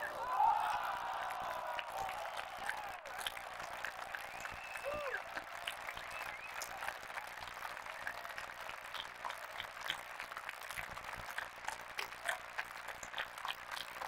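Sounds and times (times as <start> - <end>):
spectators applauding: 0.0 - 14.0.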